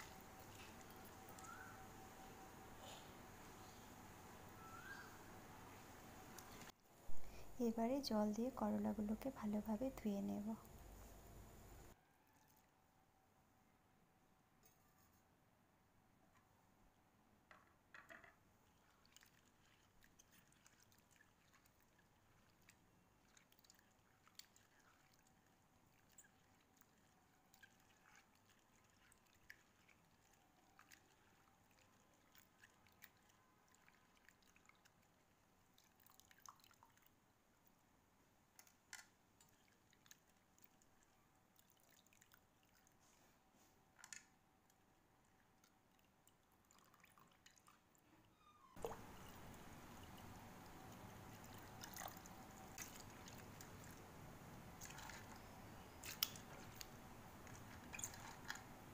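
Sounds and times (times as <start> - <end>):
water splashing in steel bowl: 48.8 - 58.8.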